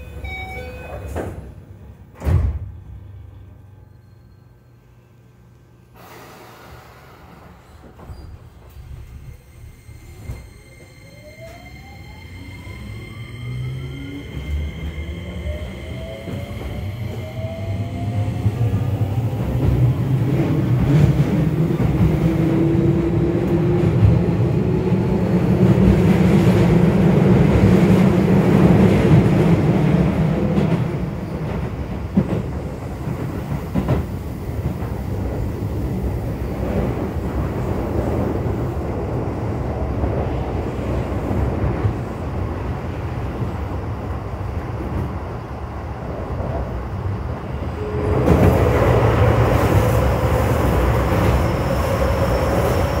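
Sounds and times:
rail joint clicks: 0:00.0 - 0:02.7
train rumble: 0:05.5 - 0:53.0.

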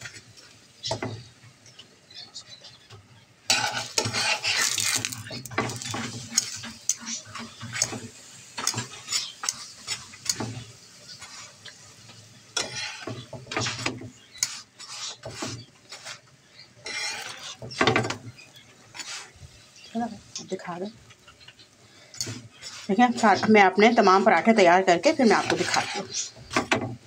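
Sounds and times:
ghee sizzling: 0:00.0 - 0:27.0
metal spatula scraping pan: 0:03.5 - 0:19.4, 0:21.9 - 0:26.8.

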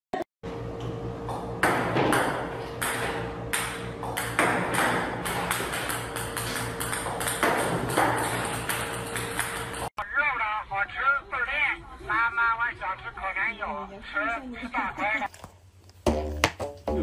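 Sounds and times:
ping-pong ball strikes: 0:01.3 - 0:09.9, 0:16.1 - 0:17.0.

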